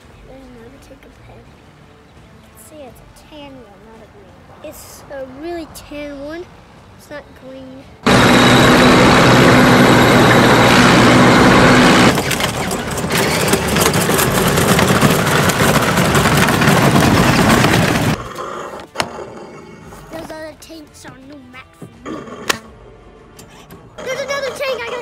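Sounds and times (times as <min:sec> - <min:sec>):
tank engine rumbling: 0:08.0 - 0:18.3.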